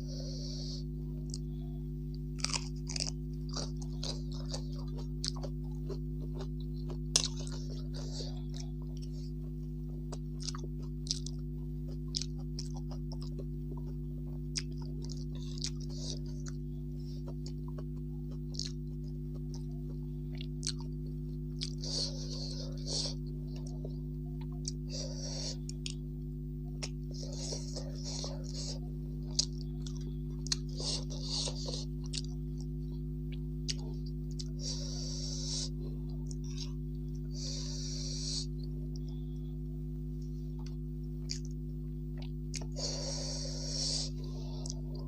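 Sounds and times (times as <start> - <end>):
low electrical hum: 0.0 - 45.0
person chewing food: 0.0 - 45.0.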